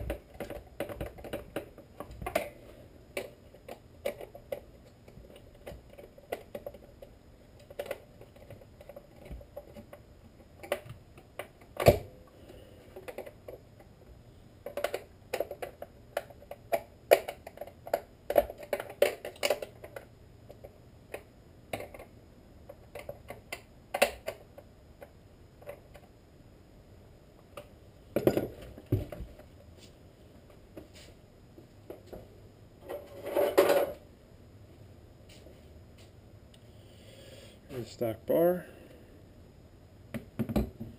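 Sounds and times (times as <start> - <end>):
parts clicking and knocking on workbench: 14.6 - 26.0, 31.9 - 34.0.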